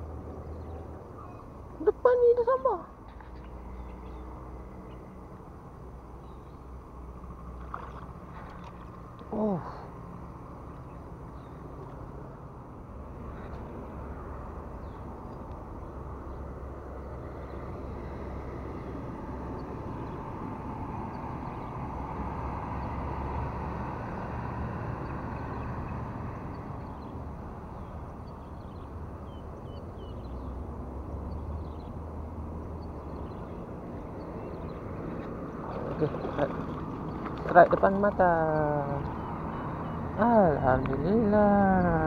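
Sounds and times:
road traffic rumble: 0:00.0 - 0:42.0
faint bird chirps: 0:00.5 - 0:01.6
vehicle passing: 0:06.8 - 0:42.0.

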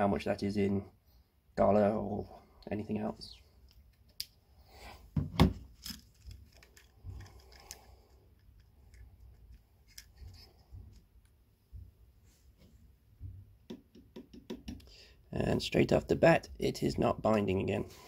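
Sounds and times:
plastic handling knocks and clicks: 0:13.2 - 0:14.9.

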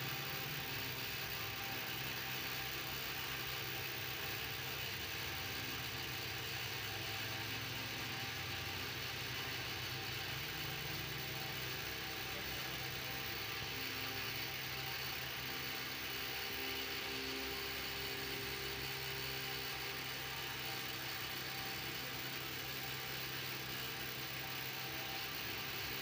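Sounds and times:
constant hiss: 0:00.0 - 0:26.0
low mechanical hum: 0:00.0 - 0:26.0.

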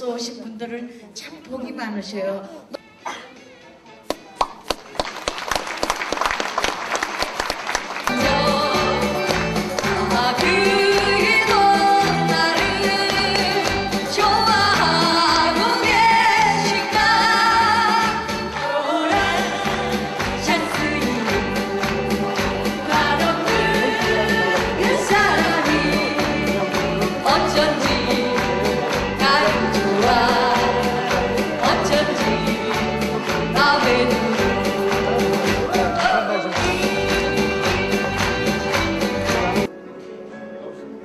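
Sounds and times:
upbeat backing track: 0:07.6 - 0:39.7
women singing into microphones: 0:08.2 - 0:37.9.

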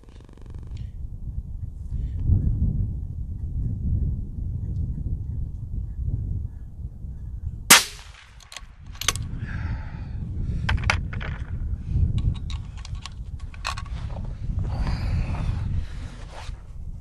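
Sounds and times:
suppressed rifle shot: 0:07.7 - 0:09.2.

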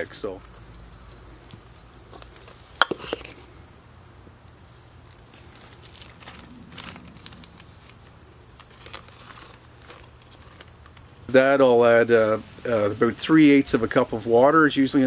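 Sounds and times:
crickets chirping: 0:00.0 - 0:15.0
plastic bag rustle: 0:05.3 - 0:11.1.

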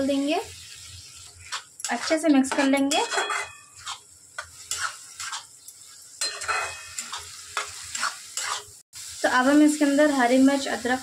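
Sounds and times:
onions sizzling: 0:00.0 - 0:11.0
spatula scraping a pan: 0:00.6 - 0:08.8.

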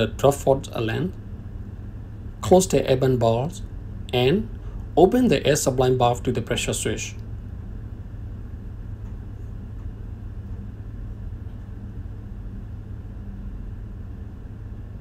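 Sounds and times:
engine room machinery hum: 0:00.0 - 0:15.0.

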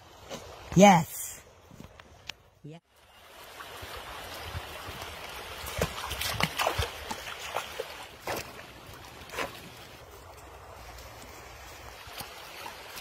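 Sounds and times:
river flowing: 0:02.9 - 0:13.0
splashes of wading footsteps: 0:03.4 - 0:13.0.

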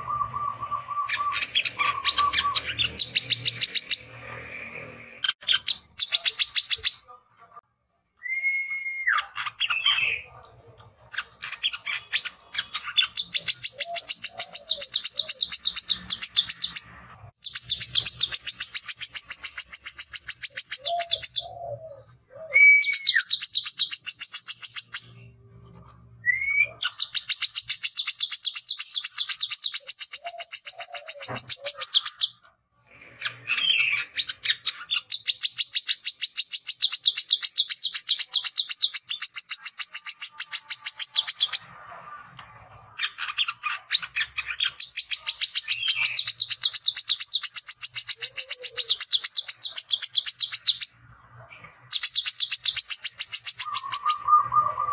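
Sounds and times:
sunbird chattering song: 0:00.0 - 0:07.0, 0:11.2 - 0:21.9, 0:26.8 - 0:32.4, 0:43.1 - 0:51.0, 0:51.6 - 0:54.9.

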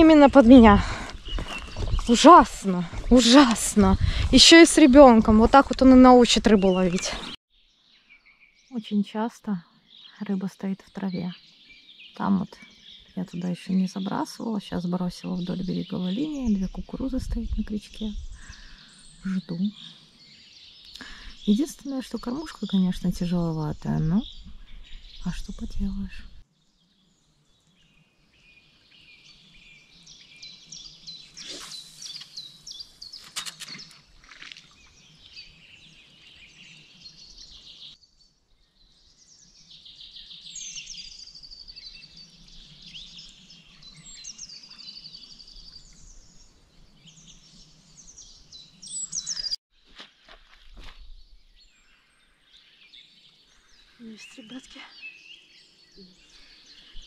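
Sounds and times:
songbirds singing: 0:00.0 - 0:49.6, 0:51.0 - 0:57.0.

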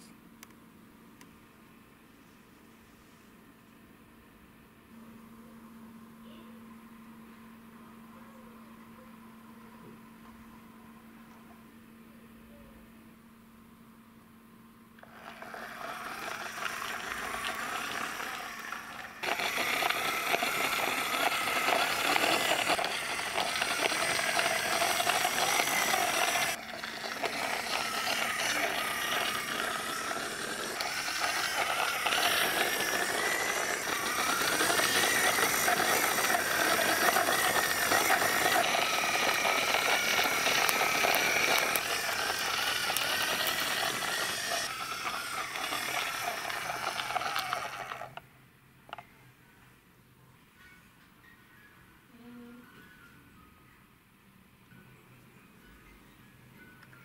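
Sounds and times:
toy truck wheels rolling and rattling: 0:15.0 - 0:48.2
toy whirring: 0:15.0 - 0:48.2.

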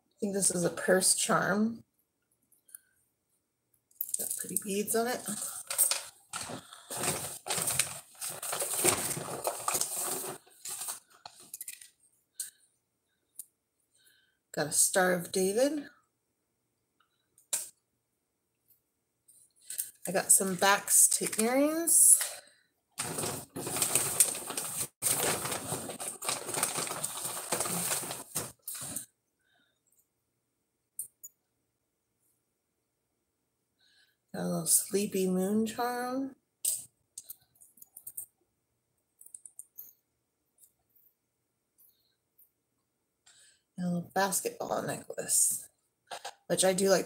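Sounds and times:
hands rummaging through jewelry: 0:05.2 - 0:12.0, 0:23.0 - 0:29.1
hands rustling jewelry: 0:23.0 - 0:29.1.

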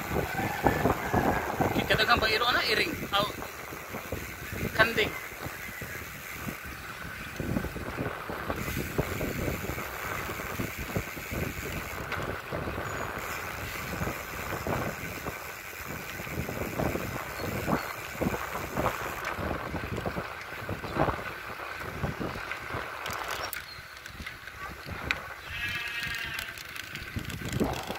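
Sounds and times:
wind buffeting microphone: 0:00.0 - 0:27.9.

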